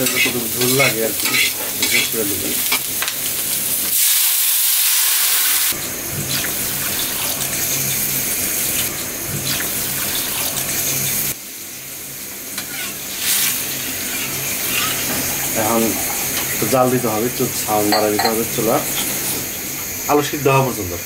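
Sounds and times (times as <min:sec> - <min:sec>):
water hissing in hot oil: 0:00.0 - 0:21.0.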